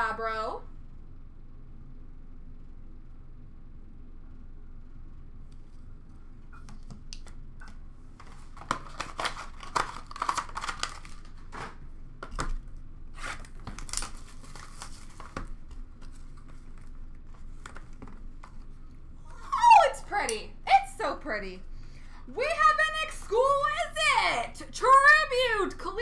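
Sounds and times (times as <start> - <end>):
cardboard packaging rustling: 7.6 - 18.8.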